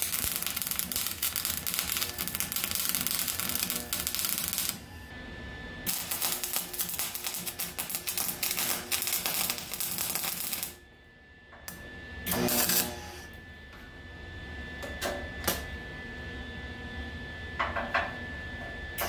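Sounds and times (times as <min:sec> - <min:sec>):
arc welder crackling: 0:00.0 - 0:05.1, 0:05.9 - 0:10.8, 0:11.7 - 0:13.2.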